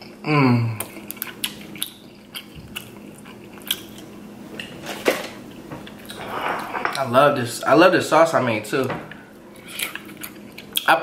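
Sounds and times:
chewing: 0.8s - 4.7s, 9.6s - 10.9s.

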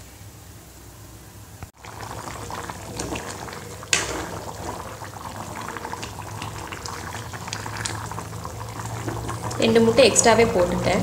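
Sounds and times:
curry bubbling and popping: 1.7s - 11.0s.

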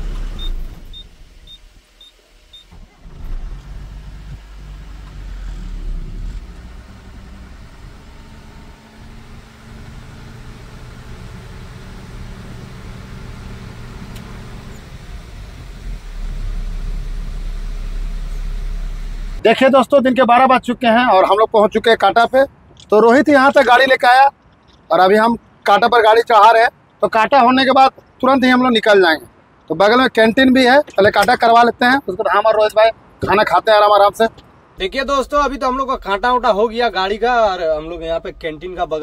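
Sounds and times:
diesel truck engine running: 0.0s - 19.8s
road noise inside cab: 0.0s - 39.0s.

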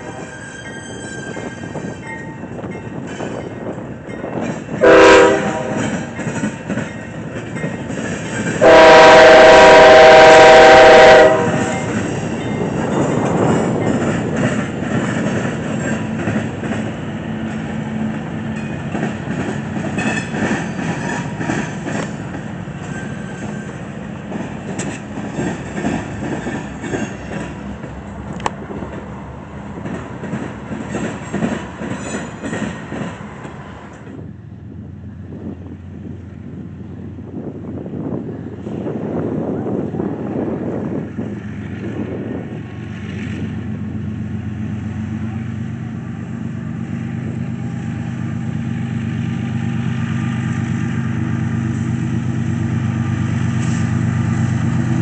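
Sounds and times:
train rumbling past: 0.0s - 55.0s
diesel locomotive horn blasts: 4.8s - 6.2s, 8.6s - 12.2s
wheels clicking over rail joints: 5.7s - 8.6s, 11.6s - 34.2s.

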